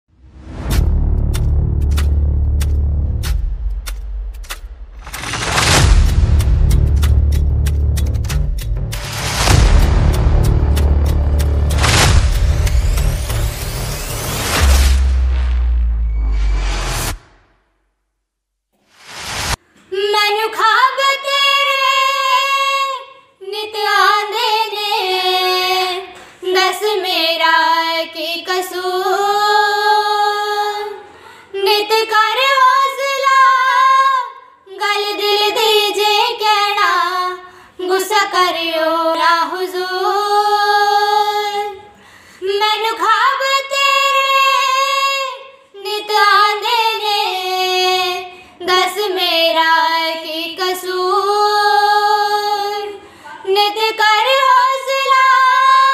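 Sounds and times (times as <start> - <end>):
women singing in unison: 19.8 - 55.9.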